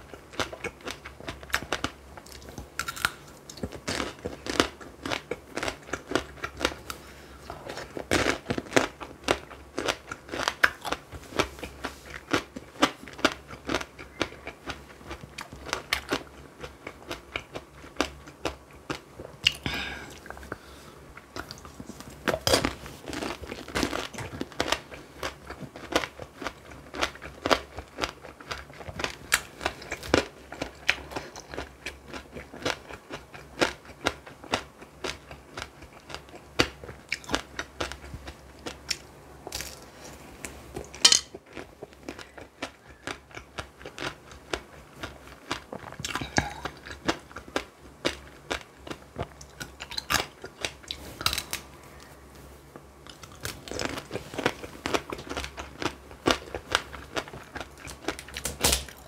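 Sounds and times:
person chewing: 0.0 - 59.0
candy shell crunching: 37.2 - 40.0.

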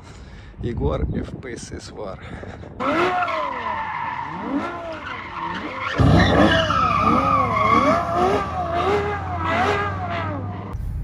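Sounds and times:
car engine revving: 2.8 - 10.8
tyres squealing: 3.1 - 10.7.

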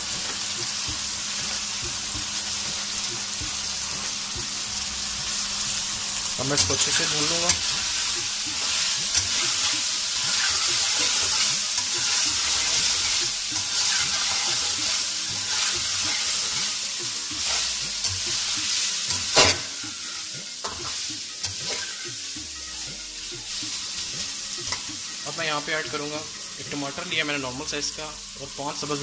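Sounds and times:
chicken sizzling in a pan: 0.0 - 29.0
metal spoon scraping a pan: 6.6 - 22.0.

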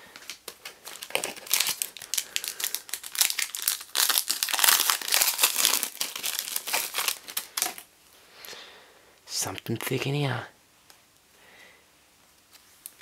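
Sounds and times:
foil wrapper tearing and crinkling: 0.2 - 7.9.

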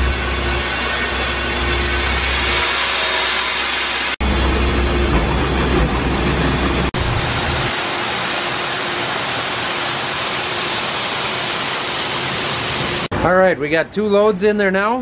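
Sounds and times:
grain augers humming: 0.0 - 11.2.

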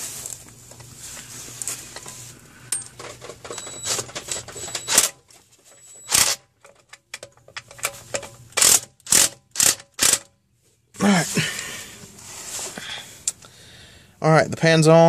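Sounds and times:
metal parts clinking: 1.9 - 10.3
impact driver bursts: 6.0 - 6.4, 8.6 - 10.3.

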